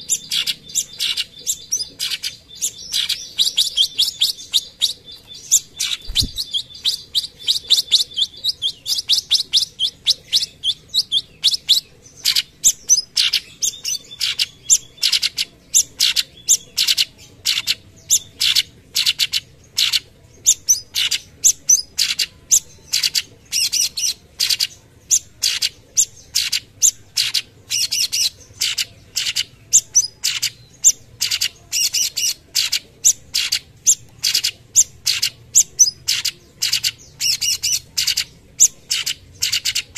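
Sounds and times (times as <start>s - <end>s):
bird singing trills and sharp notes: 0.0s - 39.9s.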